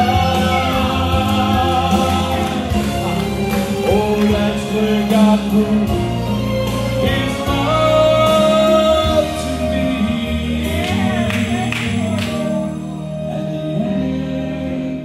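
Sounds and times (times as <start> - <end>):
instrumental accompaniment: 0.0 - 15.0
man singing gospel song: 0.0 - 15.0.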